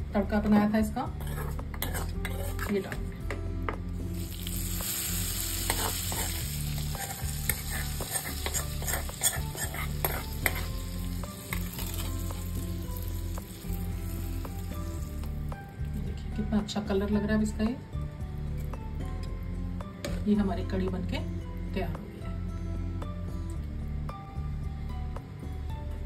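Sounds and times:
metal spoon scraping a pan: 1.1 - 3.0, 5.6 - 14.2
hot oil sizzling: 4.0 - 15.7.

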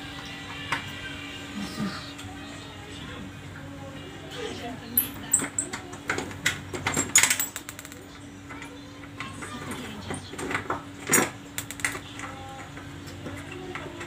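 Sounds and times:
metal tools clinking: 5.0 - 5.8, 6.9 - 7.9.

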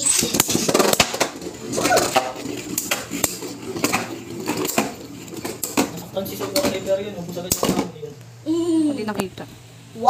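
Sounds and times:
spinning tops clashing: 0.0 - 7.8.

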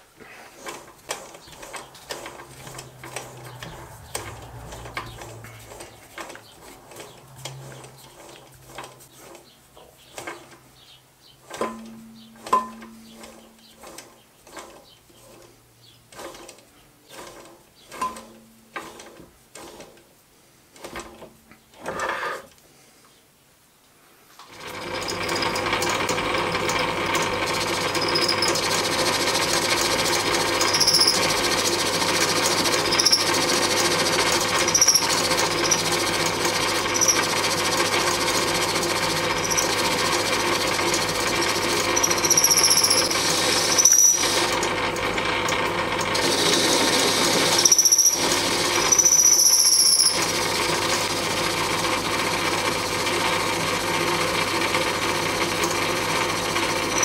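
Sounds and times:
lathe motor running: 0.6 - 9.0, 24.5 - 57.0
high-pitched cutting squeals: 27.8 - 28.7, 30.4 - 31.5, 32.6 - 37.5, 39.2 - 39.9, 41.7 - 44.5, 46.2 - 50.3, 56.8 - 57.0.

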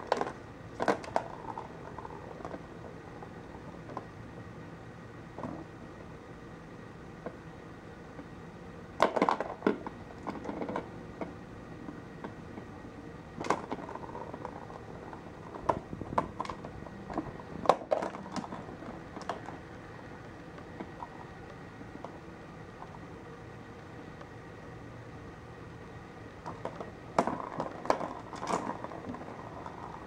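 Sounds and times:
plastic ball toy clicking and rattling: 0.0 - 2.6, 26.4 - 30.0.

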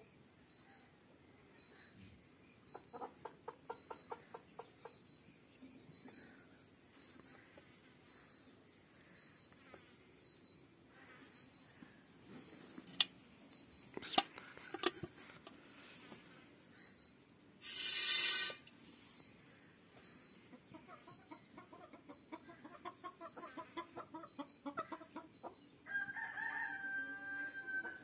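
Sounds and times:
faint high chirp: 0.0 - 28.0
chicken clucking: 2.6 - 8.4, 20.2 - 25.6.

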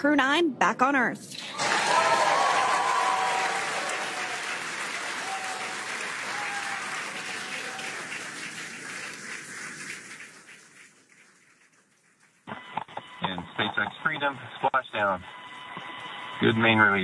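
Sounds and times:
crowd applauding and cheering: 1.4 - 13.8, 15.0 - 17.0
voiced whoops: 1.5 - 8.3.

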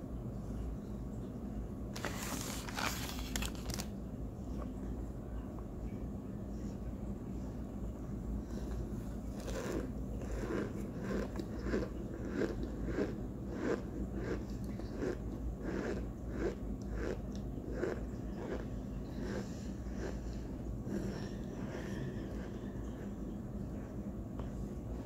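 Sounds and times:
crunchy chewing: 2.0 - 3.9, 8.5 - 23.2.

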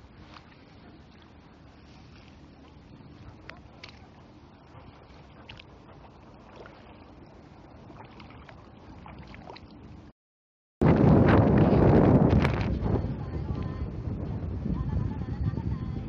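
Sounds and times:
shallow floodwater lapping: 0.0 - 10.1
microphone handling noise: 10.8 - 14.7
wind rumble on microphone: 10.8 - 16.0.

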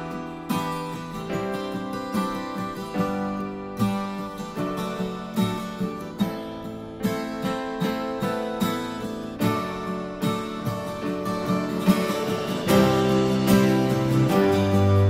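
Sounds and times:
picked acoustic guitar: 0.0 - 15.0
sustained bass notes: 11.6 - 15.0.

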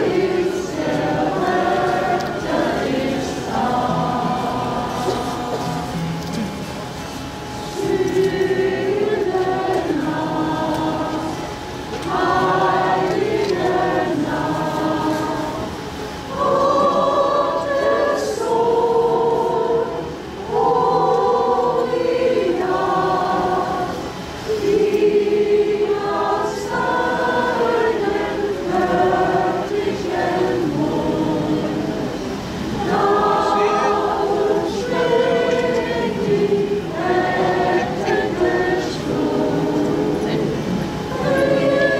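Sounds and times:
group singing a carol: 0.0 - 41.9.

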